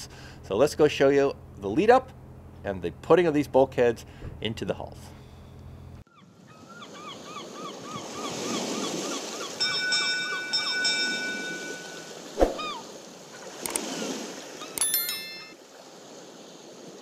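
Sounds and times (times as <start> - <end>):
sustained chime chord: 9.6 - 12.3, 14.8 - 15.6.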